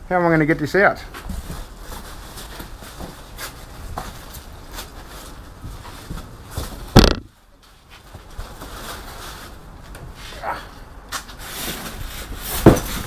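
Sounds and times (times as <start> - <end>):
bubble wrap and cardboard rustling: 0.9 - 10.4, 11.1 - 13.0
loud bump: 6.9 - 7.3.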